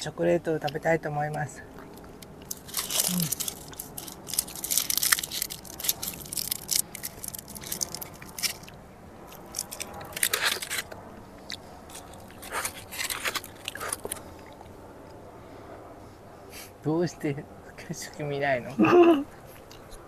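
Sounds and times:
chocolate crunching: 0:00.6 - 0:14.7.

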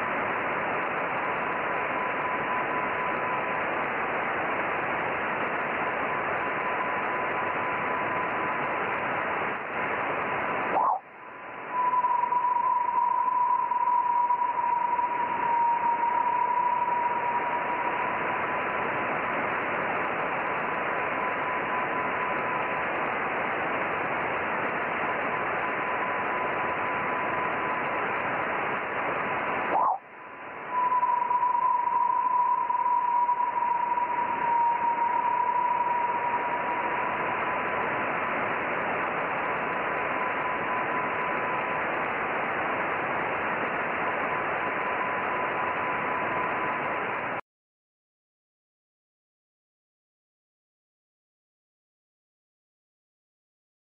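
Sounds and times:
thin radio whistle: 0:10.7 - 0:18.6, 0:29.6 - 0:38.3, 0:44.6 - 0:47.4.

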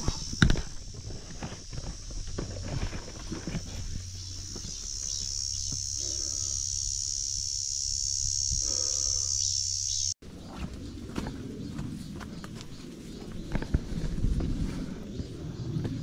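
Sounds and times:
cicadas buzzing: 0:00.0 - 0:10.2.

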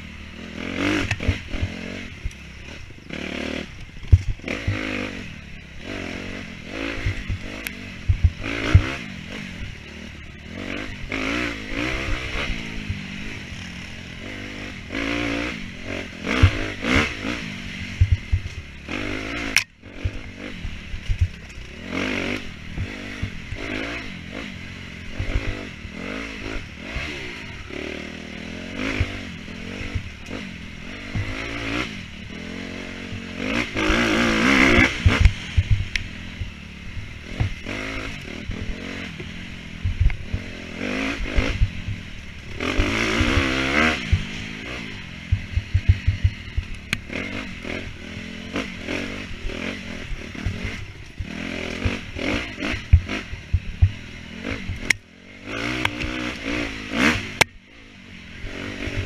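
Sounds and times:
dirt bike engine revving: 0:00.0 - 0:59.0
thumps and clatter from rough ground: 0:03.8 - 0:04.9, 0:07.0 - 0:09.0, 0:17.9 - 0:21.8, 0:29.8 - 0:31.7, 0:33.2 - 0:40.5, 0:50.1 - 0:55.1.

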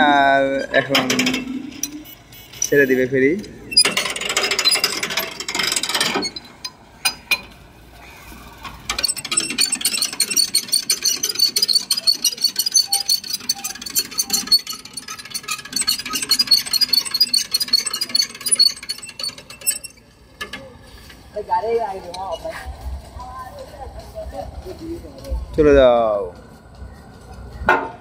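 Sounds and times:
winch grinding: 0:00.0 - 0:07.6, 0:08.6 - 0:22.6
ratchet clicking rapidly: 0:03.8 - 0:06.8, 0:08.9 - 0:20.5.

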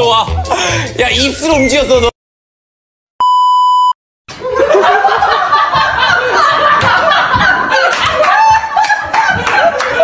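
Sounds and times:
high test tone beep: 0:03.2 - 0:04.0
people laughing: 0:04.4 - 0:10.0.

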